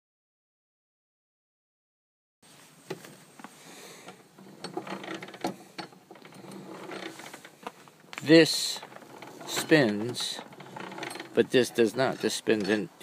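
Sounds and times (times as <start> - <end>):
metal rattling: 4.0 - 13.0.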